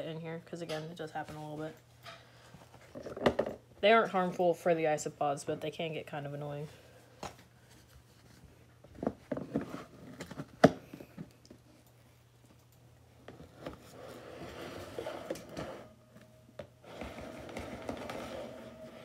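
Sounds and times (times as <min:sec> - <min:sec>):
rustling handling noise: 0:07.0 - 0:19.0.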